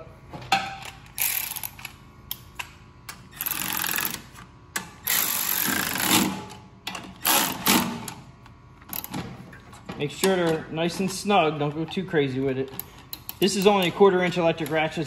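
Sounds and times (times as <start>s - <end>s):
ratchet clicks: 1.2s - 4.2s, 12.7s - 13.9s.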